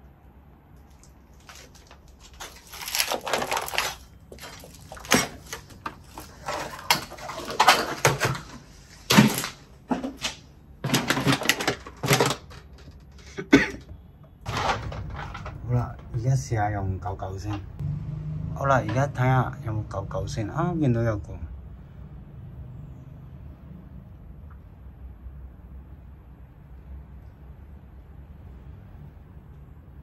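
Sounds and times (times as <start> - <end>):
rustling and scraping: 0.8 - 13.4, 14.5 - 16.2.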